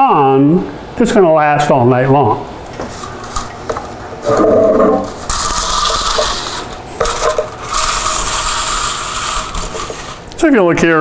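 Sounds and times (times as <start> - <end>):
plastic spool rubbing and scraping: 4.2 - 10.3.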